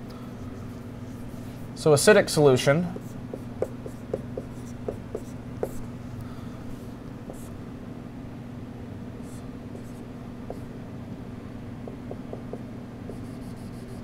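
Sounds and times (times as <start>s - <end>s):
low room hum: 0.0s - 14.0s
marker tapping on whiteboard: 3.3s - 5.8s, 11.8s - 13.3s.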